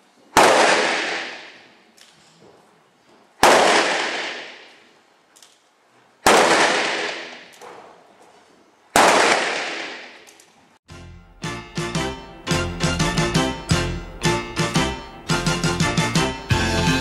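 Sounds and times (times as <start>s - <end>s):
gunshots echoing: 0.4s - 1.8s, 3.4s - 4.9s, 6.2s - 8.0s, 8.9s - 10.4s.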